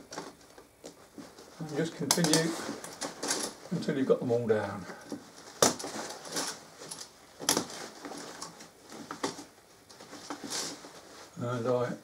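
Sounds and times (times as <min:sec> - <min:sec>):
curtain fabric rustling: 0:00.0 - 0:12.0
curtain hooks clicking: 0:02.0 - 0:03.6.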